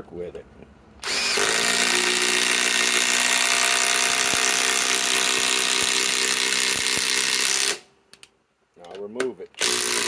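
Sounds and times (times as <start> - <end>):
impact driver driving screw into wood: 1.0 - 7.9, 9.6 - 10.0.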